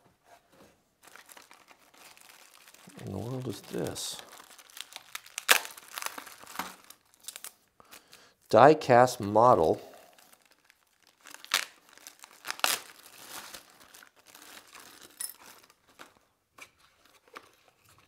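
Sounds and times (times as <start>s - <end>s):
plastic bag crinkling: 1.0s - 8.2s, 9.8s - 16.2s.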